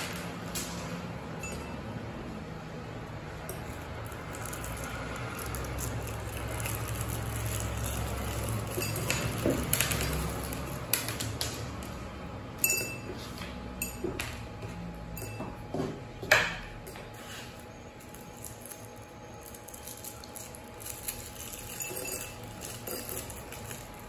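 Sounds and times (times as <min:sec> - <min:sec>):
candy tablets clinking in glass: 0:03.5 - 0:11.4, 0:18.0 - 0:24.0
cellophane wrapper crinkling: 0:03.9 - 0:11.4, 0:18.0 - 0:24.0.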